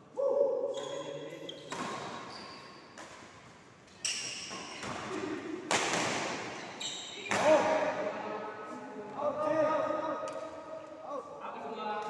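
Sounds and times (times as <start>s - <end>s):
shoes squeaking on court floor: 0.7s - 5.2s, 6.4s - 7.5s
rackets hitting shuttlecock: 4.1s - 6.6s.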